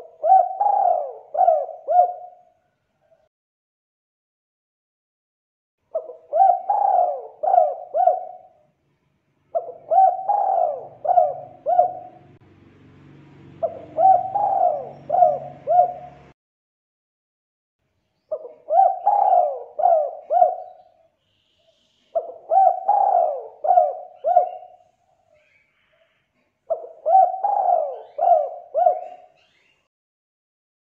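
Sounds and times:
dove cooing: 0.0 - 3.3, 5.9 - 8.7, 9.5 - 12.4, 13.6 - 16.3, 18.3 - 21.1, 22.1 - 25.6, 26.7 - 29.7.

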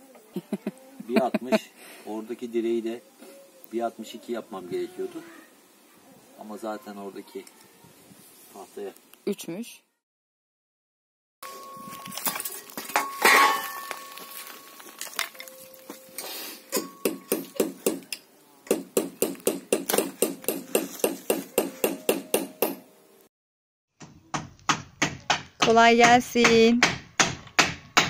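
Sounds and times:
hammer nailing boards: 18.7 - 22.8, 24.0 - 28.0.

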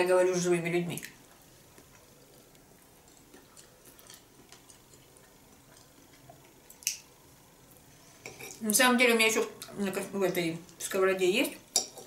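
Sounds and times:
soft chewing: 1.0 - 8.7.

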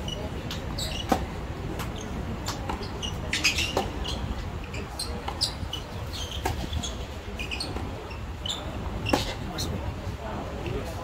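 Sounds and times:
tennis ball bouncing: 0.5 - 4.2, 6.4 - 6.7.

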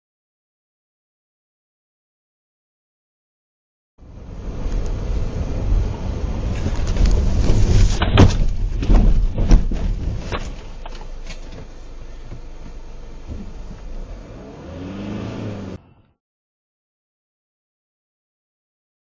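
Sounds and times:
car engine and road noise: 4.0 - 16.2
car collision bangs and crunches: 6.5 - 11.8.

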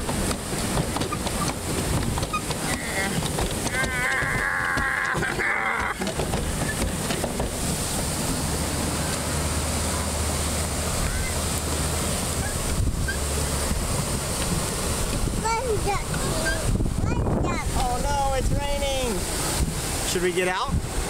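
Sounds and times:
wind and water rushing: 0.0 - 21.0
wind buffeting microphone: 10.5 - 21.0.

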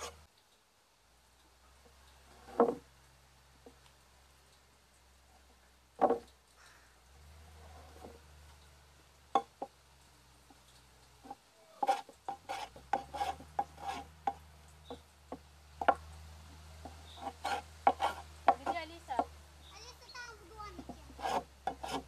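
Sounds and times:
hand plane shaving wood: 11.8 - 14.1, 17.2 - 18.8, 20.8 - 22.0.

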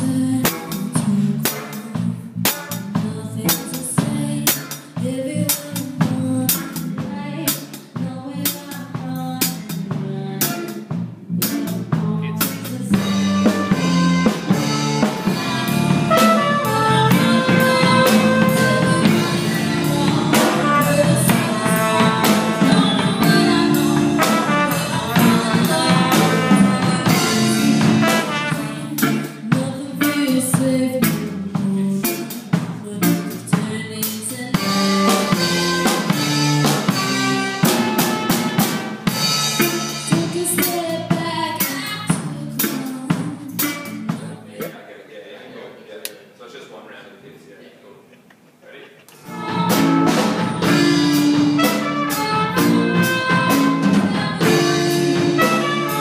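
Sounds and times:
electric guitar: 0.0 - 44.2, 49.2 - 56.0
drum kit with cymbals: 0.0 - 44.7, 49.2 - 56.0
trumpet: 13.0 - 29.2, 34.6 - 40.4, 49.2 - 56.0.

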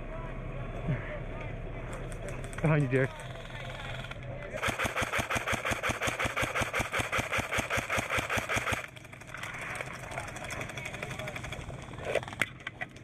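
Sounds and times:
airsoft rifle full-auto burst: 3.2 - 11.5.

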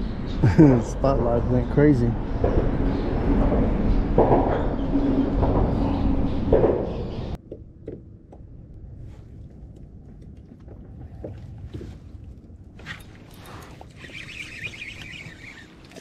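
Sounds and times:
faint water sounds: 9.0 - 16.0.

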